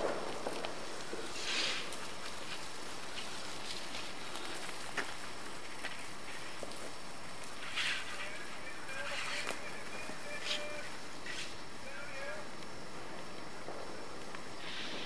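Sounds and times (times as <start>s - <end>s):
steady outdoor hiss: 0.0s - 15.0s
short rustling hiss: 0.6s - 9.6s, 10.4s - 11.8s, 14.4s - 15.0s.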